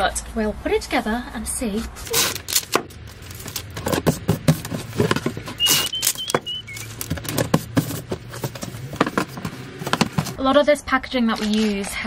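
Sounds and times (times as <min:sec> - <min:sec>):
cardboard flaps rustling and knocking: 0:02.0 - 0:10.4
packing tape tearing: 0:02.0 - 0:10.4, 0:11.4 - 0:11.9
high squeaks: 0:04.6 - 0:08.9.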